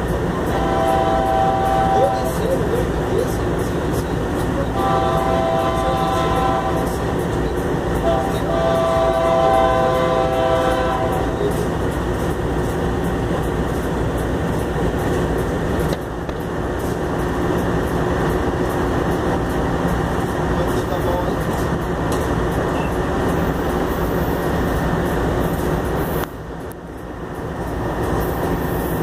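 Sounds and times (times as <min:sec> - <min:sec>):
loud steady rushing noise: 0:00.0 - 0:29.0
train air horn blasts: 0:00.5 - 0:02.5, 0:04.7 - 0:07.0, 0:08.0 - 0:11.4.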